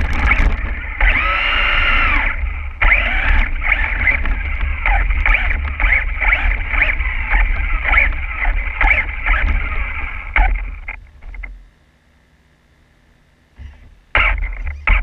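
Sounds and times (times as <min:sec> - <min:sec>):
toy truck motor whine: 0:00.0 - 0:11.0, 0:13.6 - 0:15.0
wind and tyre rumble: 0:00.0 - 0:11.7.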